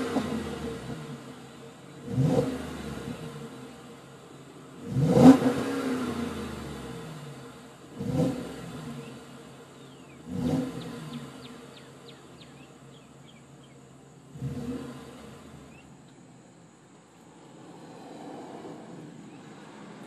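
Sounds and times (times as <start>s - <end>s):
engine revving: 0.0s - 16.0s
engine idling: 0.0s - 18.1s.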